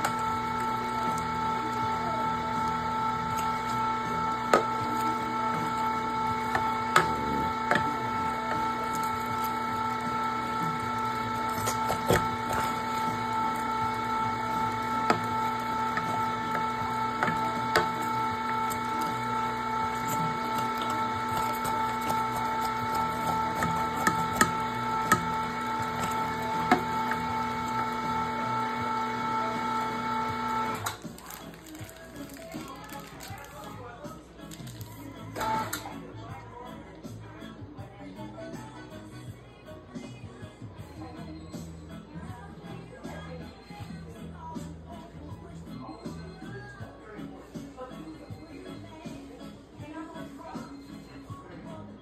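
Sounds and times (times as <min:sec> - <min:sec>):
meat grinder motor humming: 0:00.0 - 0:33.3.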